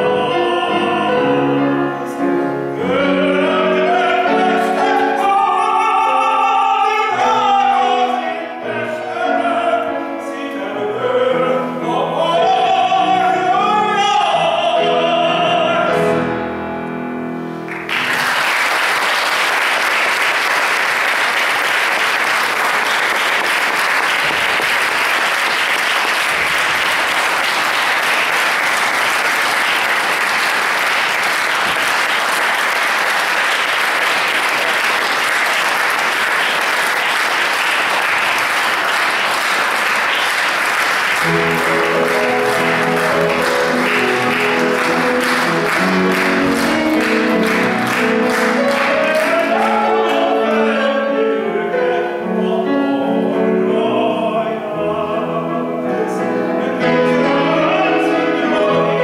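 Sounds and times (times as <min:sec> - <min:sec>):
grand piano playing chords: 0:00.0 - 0:59.0
audience applauding: 0:17.7 - 0:50.4.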